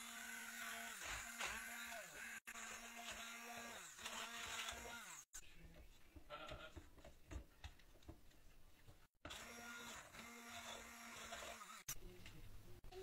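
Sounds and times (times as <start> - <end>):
immersion blender whirring: 0.0 - 5.3, 9.2 - 11.9.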